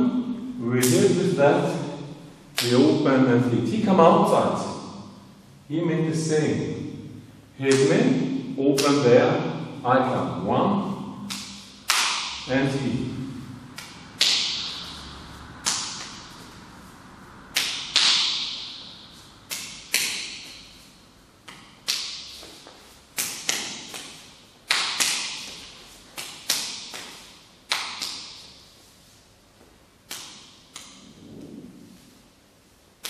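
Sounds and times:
arms slapping together: 0:00.8 - 0:01.2, 0:02.5 - 0:03.0, 0:07.7 - 0:09.0, 0:11.2 - 0:12.5, 0:13.8 - 0:15.0, 0:15.6 - 0:16.3, 0:17.5 - 0:18.8, 0:19.5 - 0:20.7, 0:21.4 - 0:28.6, 0:30.0 - 0:31.1.

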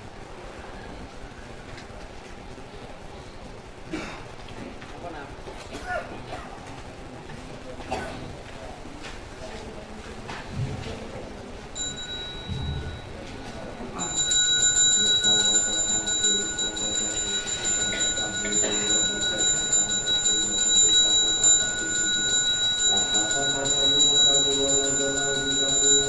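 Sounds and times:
hand bell ringing: 0:11.8 - 0:13.2, 0:14.0 - 0:26.0.

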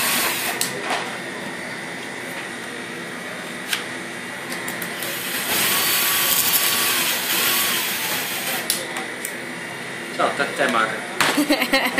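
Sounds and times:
kitchen background hum: 0:00.0 - 0:11.9.

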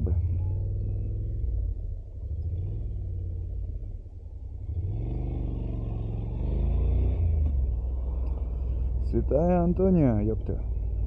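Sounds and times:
motorcycle engine revving: 0:00.0 - 0:04.0, 0:04.6 - 0:08.8.

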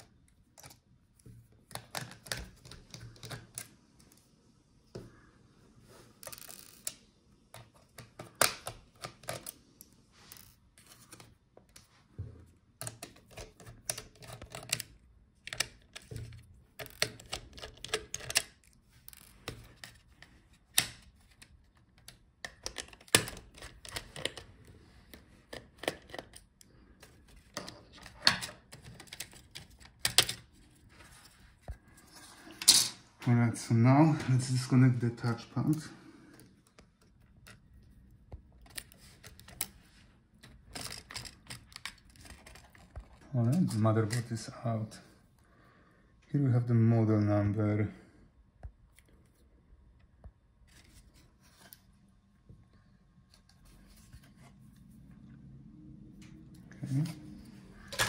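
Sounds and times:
plastic parts clacking: 0:00.0 - 0:04.2, 0:06.1 - 0:11.8, 0:12.8 - 0:31.8, 0:35.4 - 0:44.3, 0:57.8 - 0:58.0.

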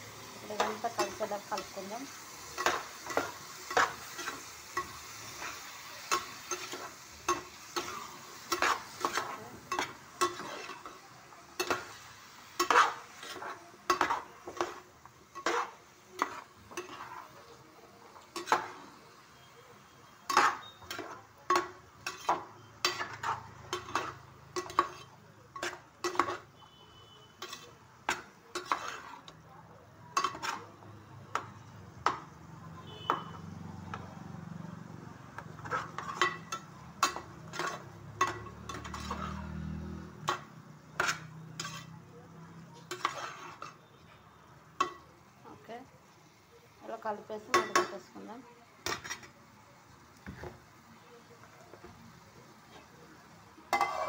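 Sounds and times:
vegetables sizzling in oil: 0:00.0 - 0:54.0
spatula scraping a metal pan: 0:00.2 - 0:17.5, 0:18.3 - 0:18.9, 0:20.0 - 0:29.4, 0:30.1 - 0:31.4, 0:35.4 - 0:42.0, 0:42.7 - 0:44.2, 0:48.8 - 0:49.4, 0:53.7 - 0:54.0.

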